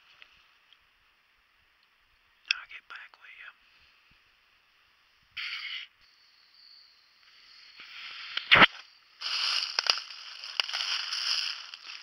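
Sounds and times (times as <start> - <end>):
footsteps crunching dry leaves: 7.8 - 12.0.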